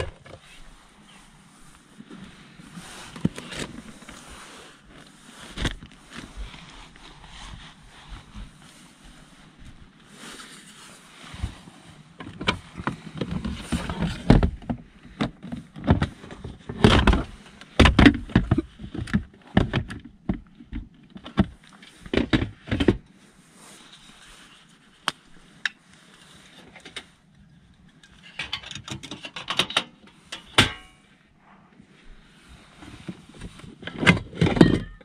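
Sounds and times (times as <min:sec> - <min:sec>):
metal camping stove clunking: 0:28.0 - 0:31.0, 0:33.9 - 0:35.0.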